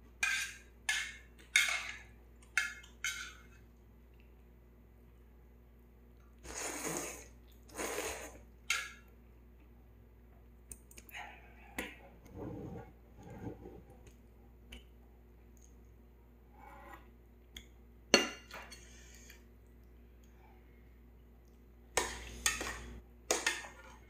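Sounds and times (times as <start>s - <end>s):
noodles slurped: 6.4s - 8.4s.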